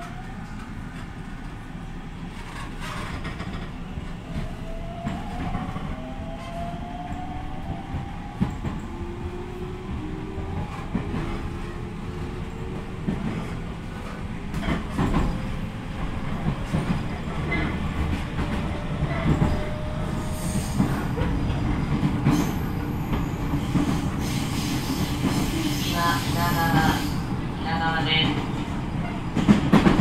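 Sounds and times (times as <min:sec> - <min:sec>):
train running rumble: 0:07.2 - 0:30.0.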